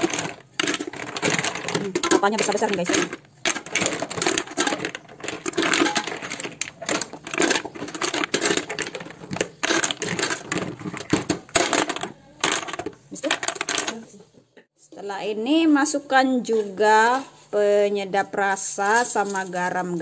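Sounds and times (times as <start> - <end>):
clams clattering into metal pot: 0.0 - 14.0.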